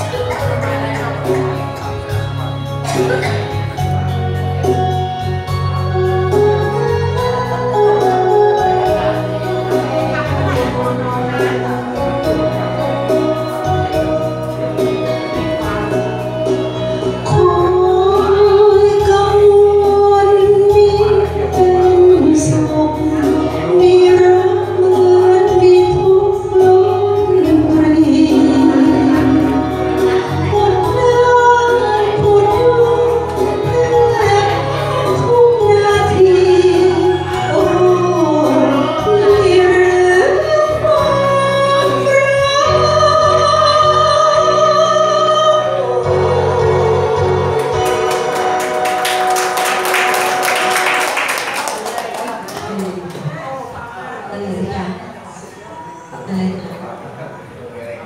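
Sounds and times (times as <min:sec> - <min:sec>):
backing music: 0:00.0 - 0:53.0
woman singing: 0:04.7 - 0:51.1.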